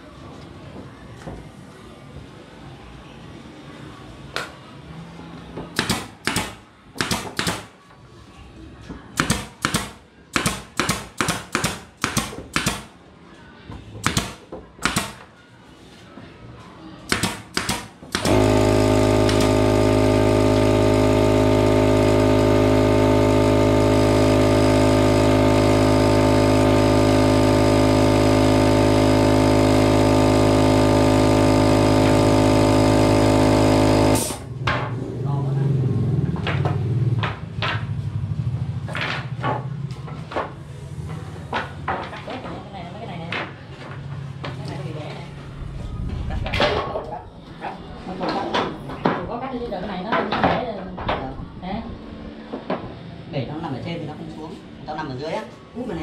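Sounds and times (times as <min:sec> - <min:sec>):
nail gun shots: 0:05.8 - 0:07.7, 0:09.2 - 0:13.0, 0:14.0 - 0:15.2, 0:17.1 - 0:19.6
air compressor humming: 0:17.1 - 0:34.6.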